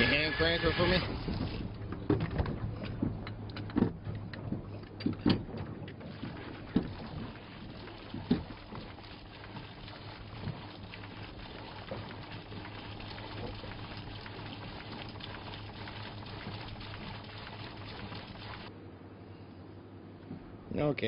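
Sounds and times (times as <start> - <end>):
steady low hum: 0.0 - 21.0
water pouring from hose: 6.0 - 18.7.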